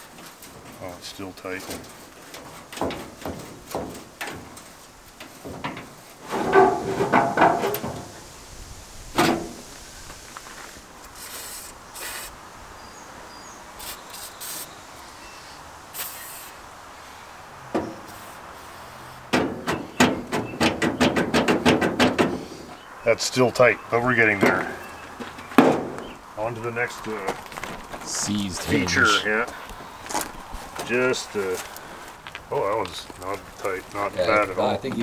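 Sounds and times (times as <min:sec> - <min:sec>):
short hissing sprays: 0:08.1 - 0:12.4, 0:13.7 - 0:17.4, 0:18.0 - 0:19.2.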